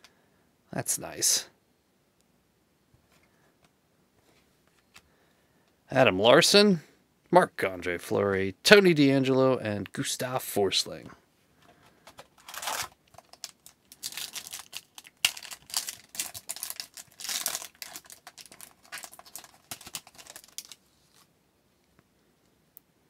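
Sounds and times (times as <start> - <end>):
foil wrapper crinkling and tearing: 12.4 - 21.2.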